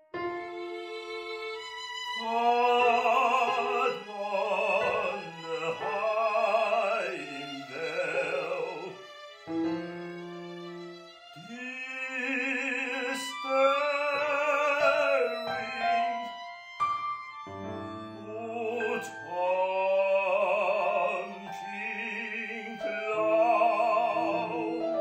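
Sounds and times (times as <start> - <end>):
operatic singing voice: 2.2 - 9.1, 11.4 - 16.0, 18.2 - 25.0.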